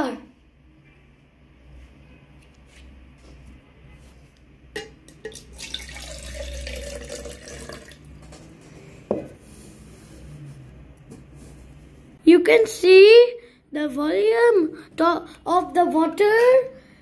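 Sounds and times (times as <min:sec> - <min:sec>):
water pouring into plastic jar: 0:05.2 - 0:08.2.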